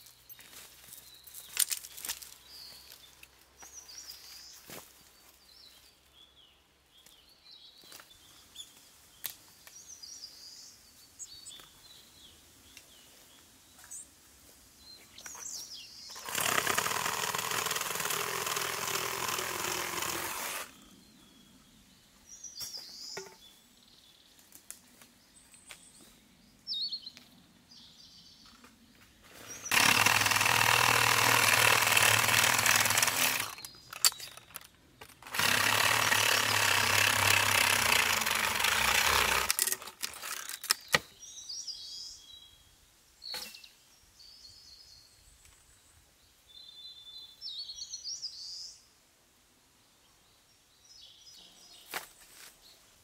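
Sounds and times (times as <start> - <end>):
small birds chirping: 0.0 - 16.6, 17.7 - 35.3
chainsaw cutting wood: 16.1 - 20.8, 29.3 - 41.1.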